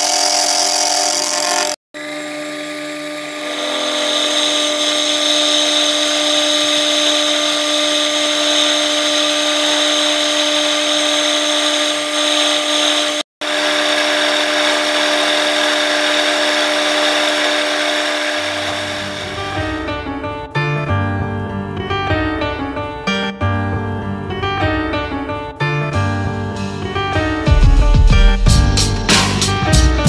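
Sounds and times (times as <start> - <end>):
milling machine spindle whine: 0.0 - 19.8
piano music: 18.4 - 30.0.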